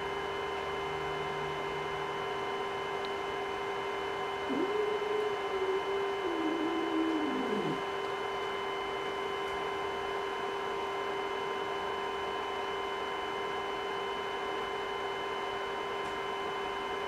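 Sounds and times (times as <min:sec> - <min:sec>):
electrical hum and hiss: 0:00.0 - 0:11.1.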